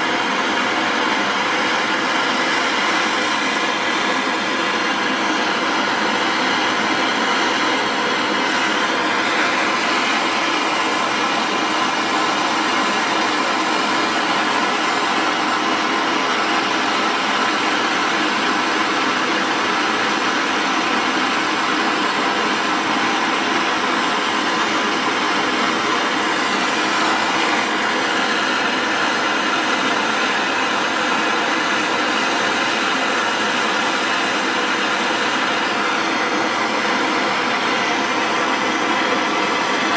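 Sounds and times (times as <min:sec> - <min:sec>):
torch flame hissing: 0:00.0 - 0:39.9.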